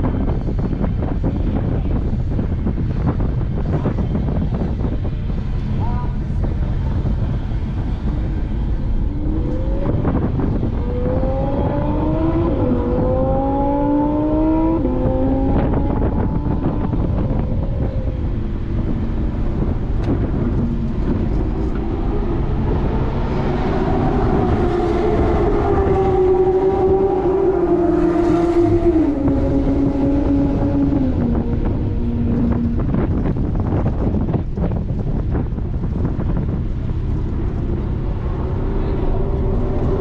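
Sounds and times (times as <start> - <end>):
road and wind noise: 0.0 - 40.0
car engine accelerating: 4.6 - 40.0.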